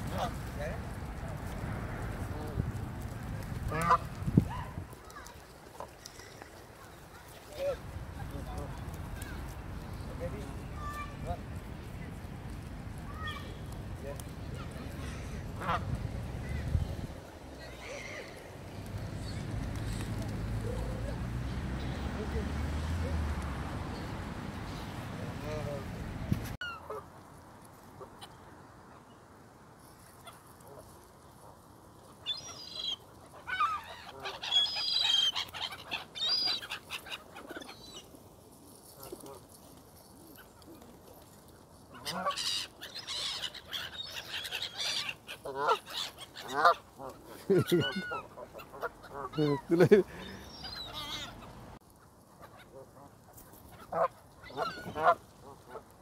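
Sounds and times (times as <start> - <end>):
geese honking: 3.6 - 4.2, 32.4 - 37.6, 41.9 - 51.6, 53.7 - 56.0.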